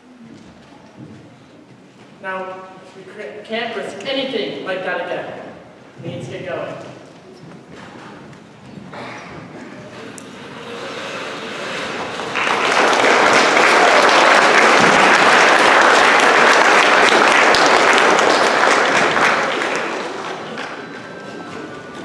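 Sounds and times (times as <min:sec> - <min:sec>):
audience applause: 0:08.9 - 0:22.0.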